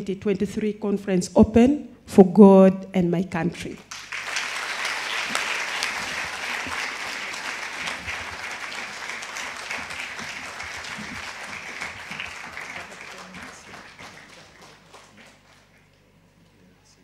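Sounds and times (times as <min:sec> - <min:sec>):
audience applauding: 0:03.9 - 0:16.0.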